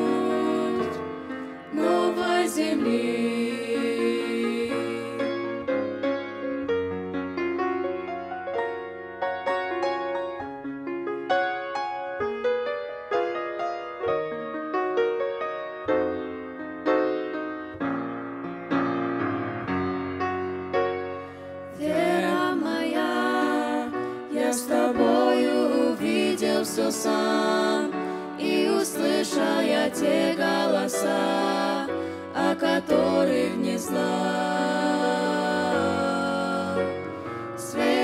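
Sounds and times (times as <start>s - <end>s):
vocal trio singing: 0.0s - 5.7s, 21.7s - 38.0s
grand piano playing: 0.0s - 38.0s.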